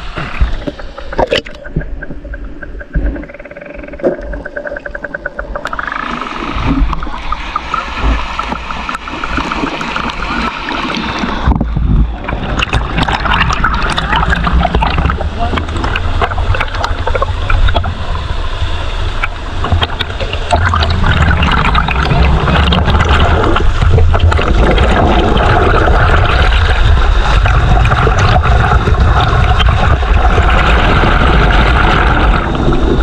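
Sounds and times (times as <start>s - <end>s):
stream splashing over rocks: 5.7s - 18.3s, 19.2s - 33.0s.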